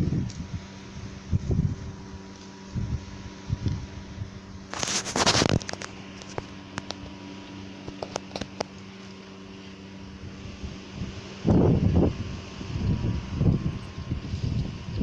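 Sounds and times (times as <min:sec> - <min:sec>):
wind gusting on microphone: 0:00.0 - 0:07.1, 0:10.0 - 0:15.0
faint steady hum: 0:00.0 - 0:15.0.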